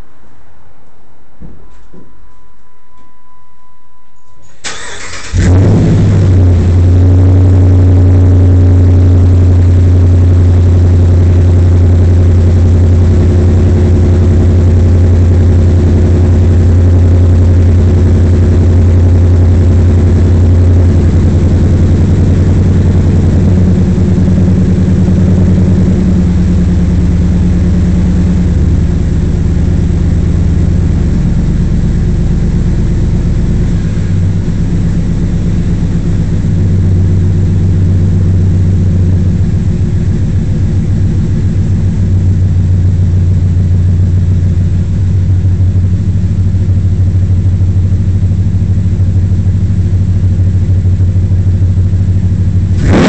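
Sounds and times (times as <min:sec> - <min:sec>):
truck engine idling: 0:03.6 - 0:53.0.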